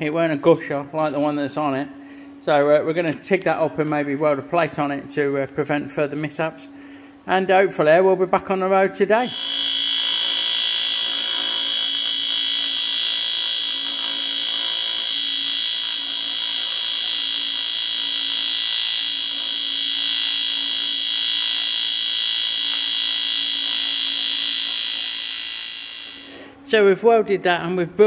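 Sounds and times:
welding arc buzzing: 9.2 - 26.6.

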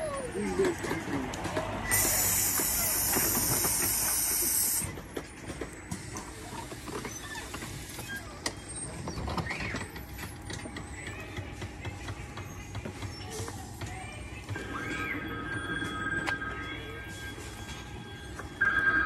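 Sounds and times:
compressed air hissing: 1.9 - 4.9.

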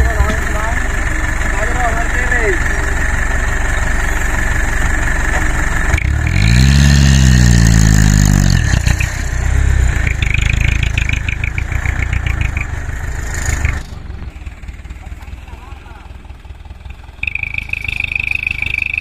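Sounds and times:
diesel truck engine revving: 0.0 - 19.0
rapid even ticking: 0.0 - 19.0.

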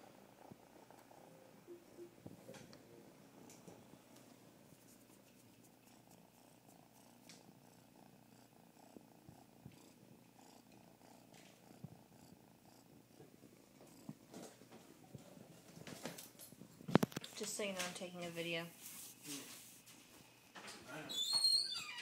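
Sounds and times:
kitten purring: 0.0 - 19.2
soft clicks and rustles: 13.7 - 20.9.

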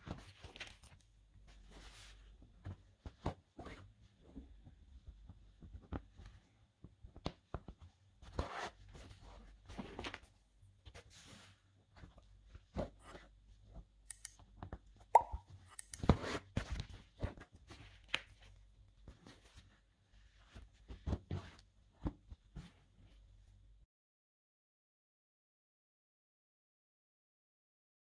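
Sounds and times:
small clicks and taps: 14.0 - 16.1.

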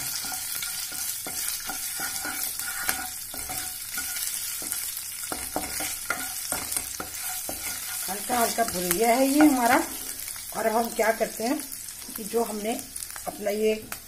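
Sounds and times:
spatula scraping and tapping pan: 0.0 - 10.0
spices sizzling in hot oil: 0.0 - 14.0.

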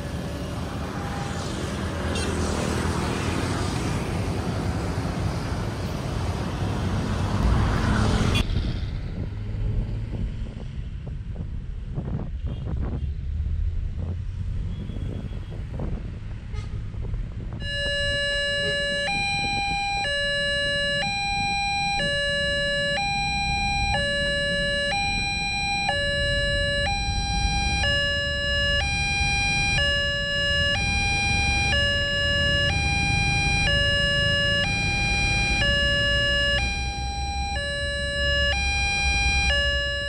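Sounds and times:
road traffic rumble: 0.0 - 40.0
level crossing warning siren: 17.6 - 40.0.

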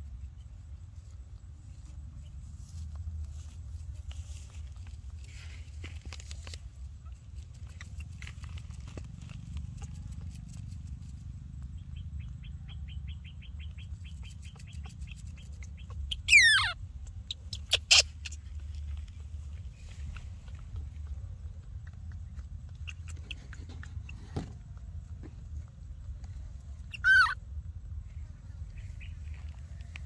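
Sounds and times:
steady low rumble: 0.0 - 30.0
faint fast chirping: 9.7 - 27.4
baby monkey squealing: 14.1 - 18.6, 26.9 - 27.4
short sharp cries: 26.9 - 27.4.

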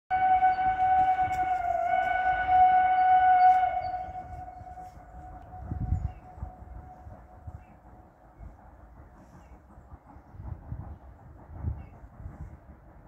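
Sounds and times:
steam locomotive whistle: 0.1 - 7.7.

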